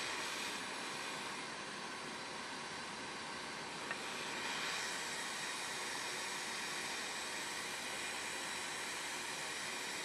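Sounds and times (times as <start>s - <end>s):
hot air nozzle hissing: 0.0s - 1.5s, 3.7s - 10.0s.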